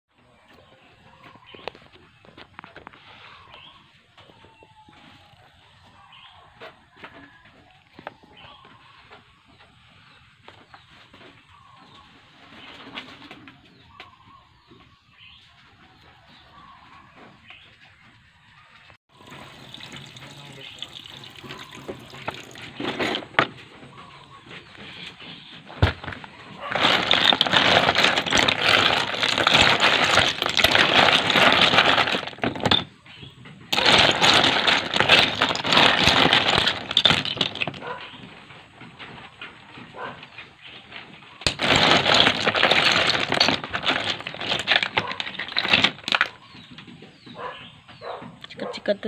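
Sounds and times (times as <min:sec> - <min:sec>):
wet shells clattering and grinding: 0:19.5 - 0:23.6, 0:25.7 - 0:38.2, 0:41.4 - 0:46.7.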